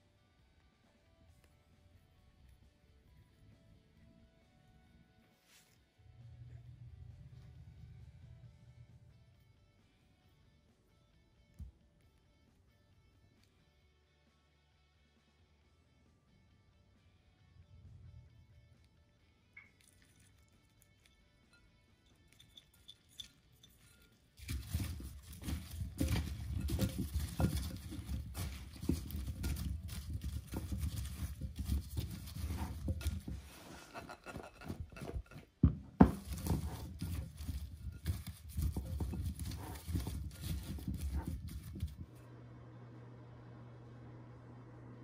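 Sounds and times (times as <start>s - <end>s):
cauliflower tossed in glass bowl: 22.3s - 42.2s.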